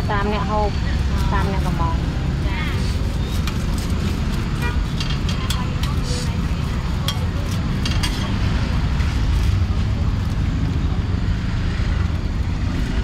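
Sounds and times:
faint voices: 0.0 - 10.2.

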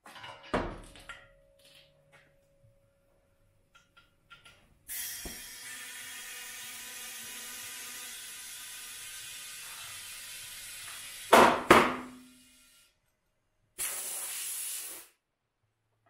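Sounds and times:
compressed air hissing into tyre: 4.9 - 11.3, 13.8 - 15.2.

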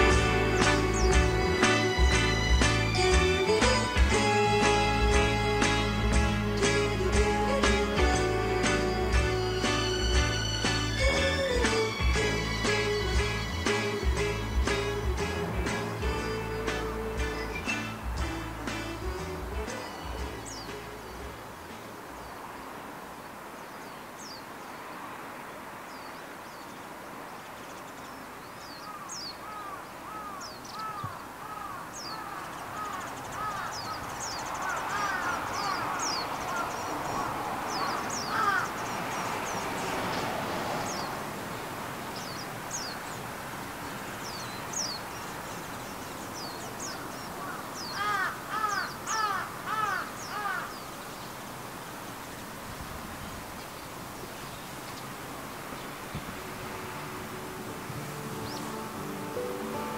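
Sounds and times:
small birds chirping: 0.0 - 25.0, 25.8 - 56.4, 58.2 - 59.4
crows cawing: 28.8 - 38.8, 47.0 - 50.8.

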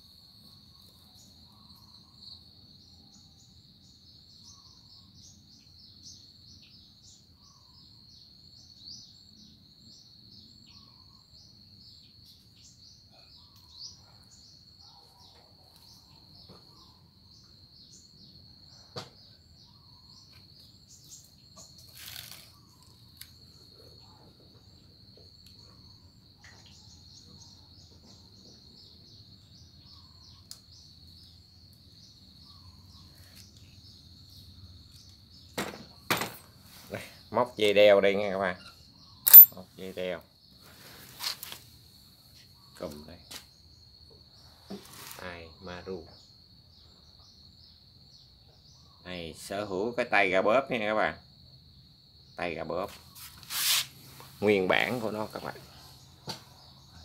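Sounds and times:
insects trilling: 0.0 - 57.0
brief rustle: 21.8 - 22.6, 41.0 - 41.7, 53.2 - 54.4
sharp click: 39.3 - 39.6.

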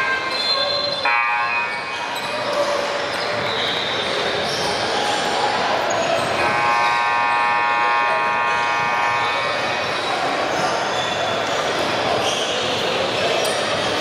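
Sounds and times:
steady multi-tone sound: 6.4 - 10.5.

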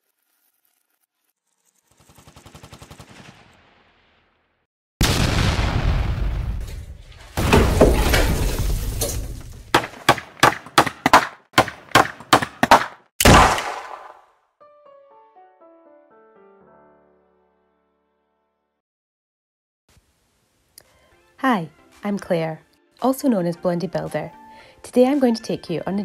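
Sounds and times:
sharp bangs: 9.6 - 14.2.

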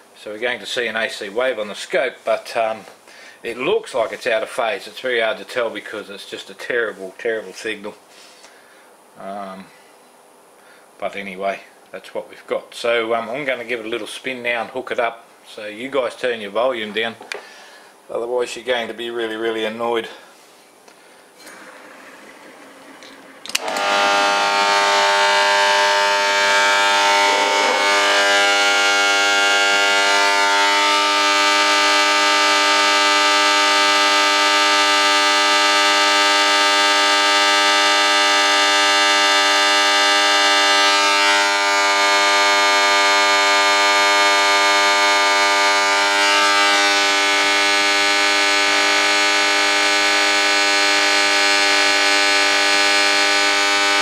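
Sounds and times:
loud electrical buzz: 21.4 - 54.0.

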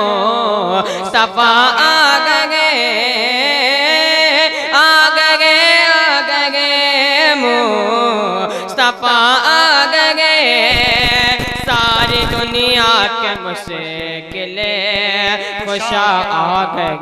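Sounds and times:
boy singing into a microphone: 0.0 - 17.0
low buzz: 10.7 - 12.9.

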